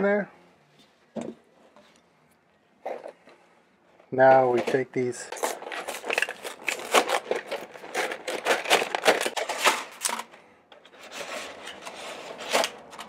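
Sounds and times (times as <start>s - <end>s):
cardboard box and plastic tray crackling: 4.7s - 10.3s.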